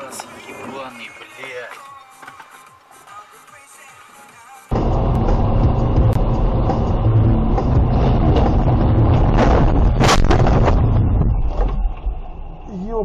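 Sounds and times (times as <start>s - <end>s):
tyre and road noise: 4.7s - 13.0s
sharp knocks and bangs: 6.7s - 12.3s.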